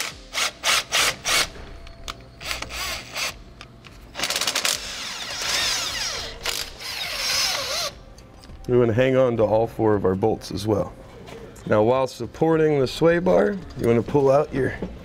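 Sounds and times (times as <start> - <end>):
impact wrench bursts: 4.2 - 8.0.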